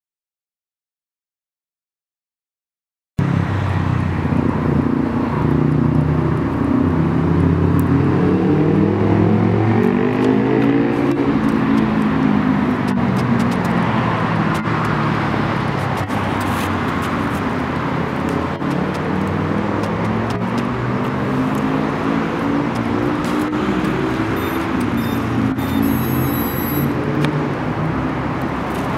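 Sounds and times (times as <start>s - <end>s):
quadcopter propellers whining: 23.9s - 26.9s.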